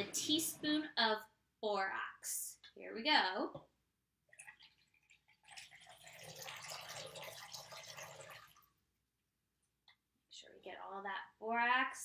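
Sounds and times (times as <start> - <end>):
liquid dripping: 4.2 - 8.8
liquid pouring into a bowl: 4.2 - 8.8.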